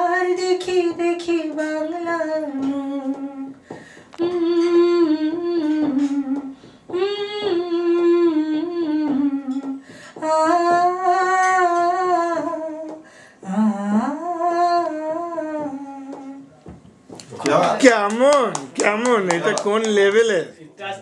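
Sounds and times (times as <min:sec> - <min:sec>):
woman humming a melody: 0:01.0 - 0:03.6, 0:04.2 - 0:16.6.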